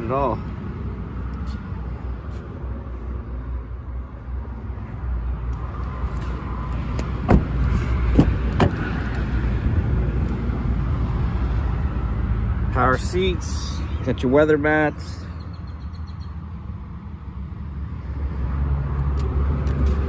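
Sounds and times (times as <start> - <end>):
low rumble of outdoor noise: 0.0 - 20.0
sharp knocks on car door: 7.2 - 8.8.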